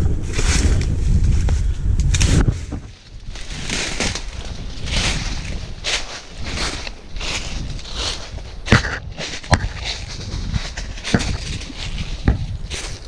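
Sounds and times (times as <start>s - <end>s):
wind rumbling on microphone: 0.0s - 13.0s
footsteps crunching through dry leaves: 2.7s - 13.0s.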